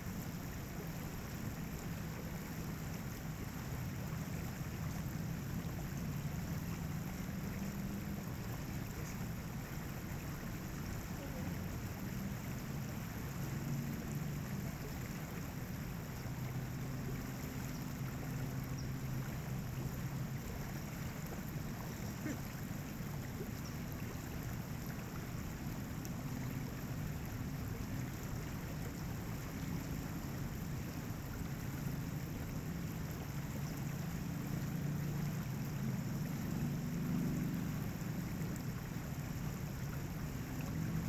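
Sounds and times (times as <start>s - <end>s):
river water over rocks: 0.0s - 41.0s.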